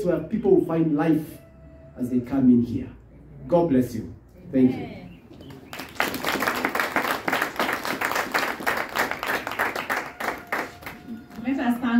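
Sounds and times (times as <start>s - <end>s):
congregation clapping and applauding: 5.5s - 11.4s.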